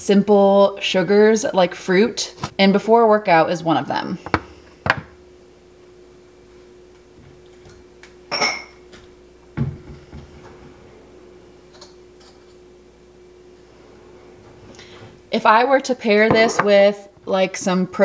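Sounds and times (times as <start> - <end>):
faint steady hum: 0.0 - 18.0
dishware clinking: 8.3 - 8.8, 16.3 - 16.8
cupboard or drawer thud: 16.3 - 16.7.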